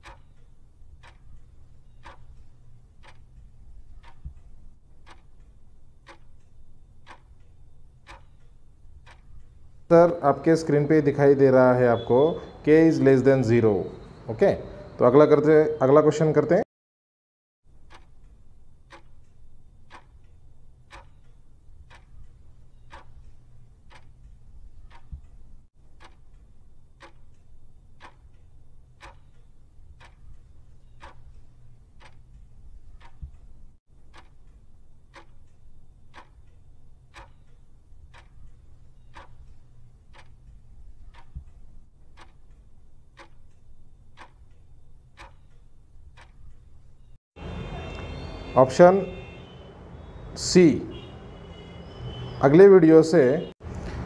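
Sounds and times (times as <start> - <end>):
clock ticking: 0.0 - 12.2, 17.7 - 47.2.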